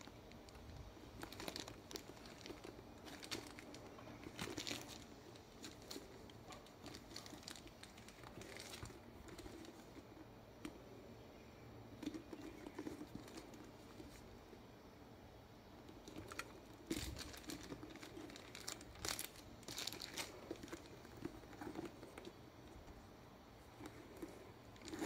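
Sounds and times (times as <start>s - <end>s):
leather handbag rustling: 1.2s - 10.1s, 16.0s - 22.9s, 23.6s - 25.0s.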